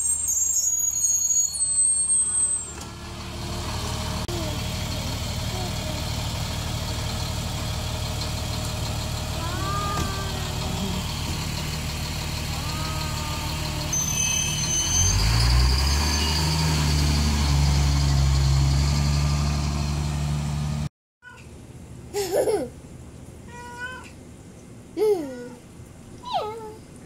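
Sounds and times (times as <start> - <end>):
diesel bus engine idling and revving: 0.0 - 20.9
cat meowing: 12.5 - 13.9, 23.5 - 24.2.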